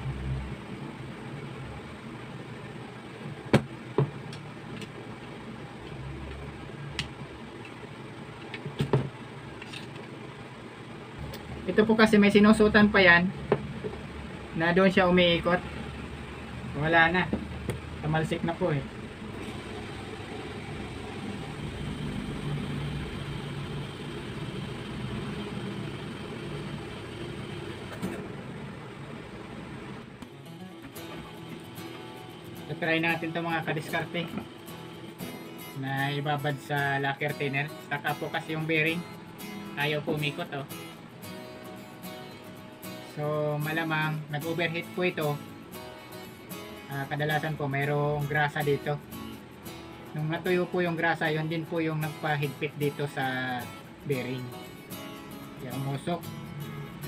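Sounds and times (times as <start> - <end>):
faint steady hum: 0.0 - 44.4.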